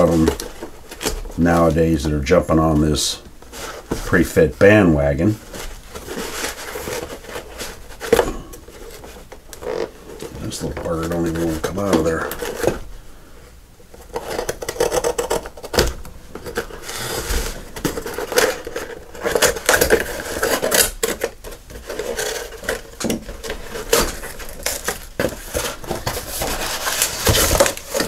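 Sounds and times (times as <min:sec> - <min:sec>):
cardboard scraping and rustling: 0:00.0 - 0:13.0, 0:13.9 - 0:28.0.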